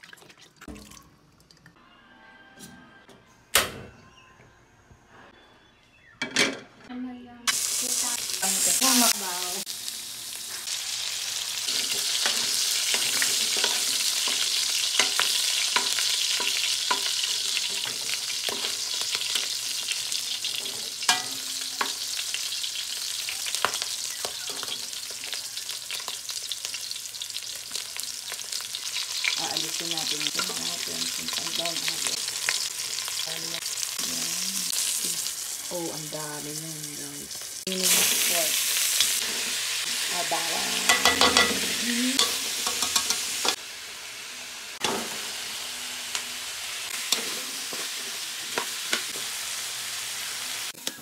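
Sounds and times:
meat sizzling in a wok: 7.5 - 51.0
metal spoon scraping a pan: 11.6 - 22.2, 37.8 - 43.6, 47.0 - 49.4.

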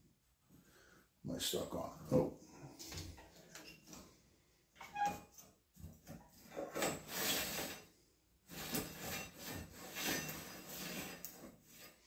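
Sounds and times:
saw blade scraping and rasping: 6.5 - 7.9, 8.5 - 12.0.

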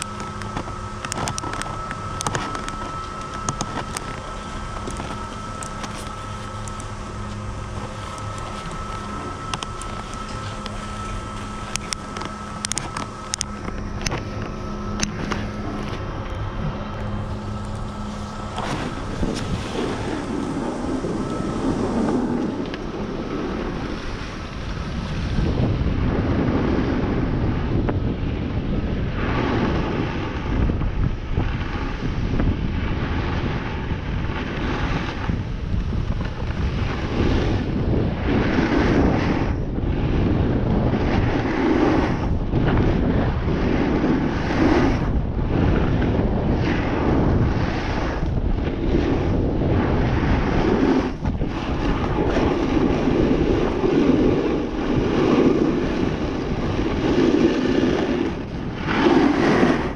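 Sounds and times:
wind rushing over microphone: 0.0 - 59.9
ski edges scraping on snow: 49.8 - 59.9.

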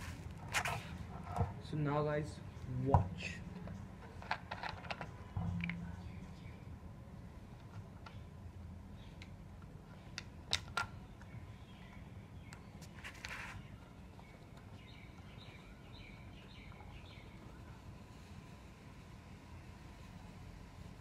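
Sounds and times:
steady low rumble: 5.1 - 10.5.

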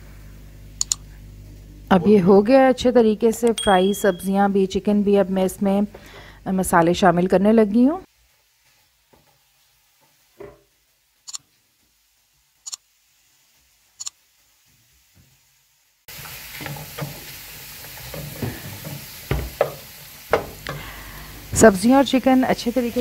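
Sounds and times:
sharp clicks: 0.8 - 1.0
food sizzling in a frying pan: 7.8 - 23.0.

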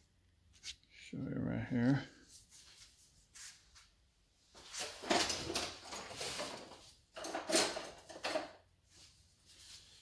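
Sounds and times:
parts and tools rustling and scraping: 2.2 - 10.0.

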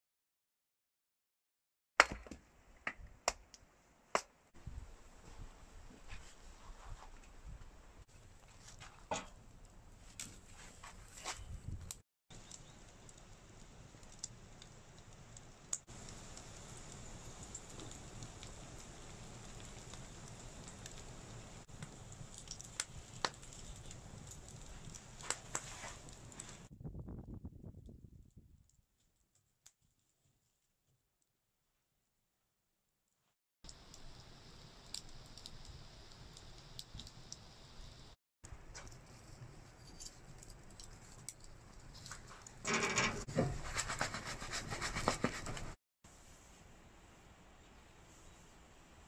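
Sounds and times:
wood fire crackling: 2.0 - 27.3, 33.7 - 45.8
pan scraping on stove top: 42.6 - 45.8.

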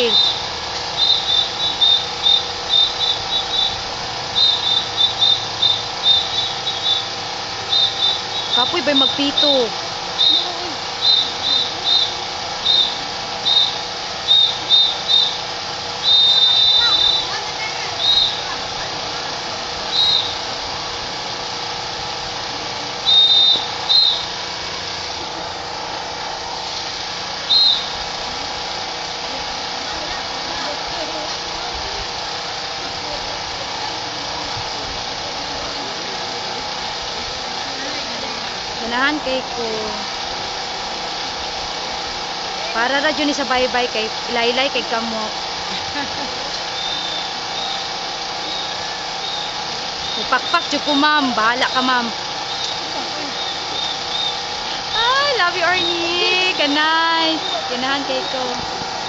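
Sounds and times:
whistle blasts: 0.0 - 18.6, 19.9 - 20.6, 23.0 - 24.6, 27.4 - 28.1, 46.7 - 58.6
steady background noise: 0.0 - 59.0.

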